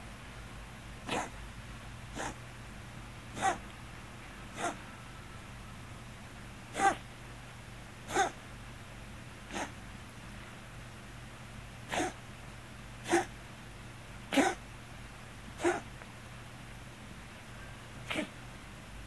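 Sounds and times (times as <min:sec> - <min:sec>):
cat coughing: 0:01.0 - 0:01.4, 0:02.2 - 0:02.4, 0:03.3 - 0:03.6, 0:04.5 - 0:04.8, 0:06.7 - 0:07.0, 0:08.1 - 0:08.4, 0:09.5 - 0:09.8, 0:11.9 - 0:12.2, 0:13.0 - 0:13.3, 0:14.3 - 0:14.6, 0:15.6 - 0:15.9, 0:18.0 - 0:18.4.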